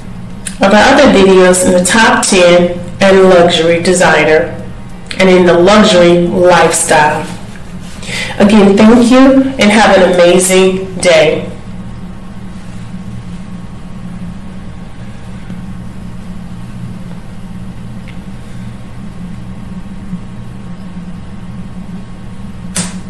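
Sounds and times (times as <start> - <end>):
steady low hum: 0.0 - 23.0
short click: 22.7 - 23.0.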